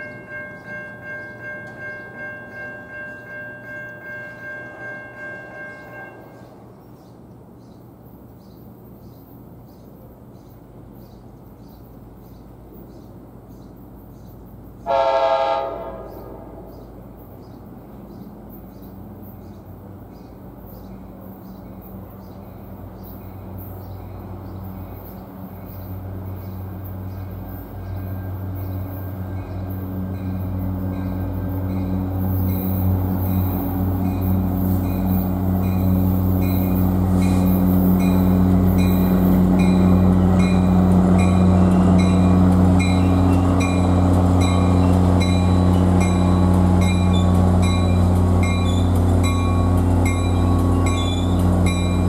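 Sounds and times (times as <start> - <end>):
crossing bell ticking: 0.0 - 6.4, 26.8 - 52.0
train horn blast: 0.0 - 6.6, 14.9 - 16.7
train rumbling: 0.0 - 52.0.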